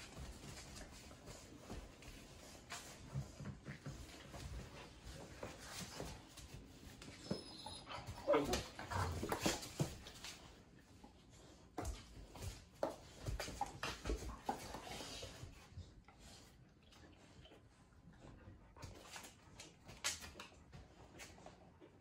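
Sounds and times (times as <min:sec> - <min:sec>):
dogs scuffling on hard floor: 0:00.0 - 0:16.5, 0:18.8 - 0:21.9
dogs whining and yelping: 0:07.0 - 0:09.2.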